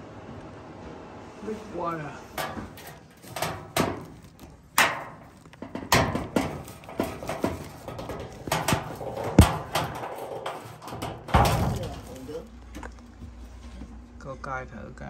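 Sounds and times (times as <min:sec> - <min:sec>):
heavy thump: 0:02.4 - 0:12.4.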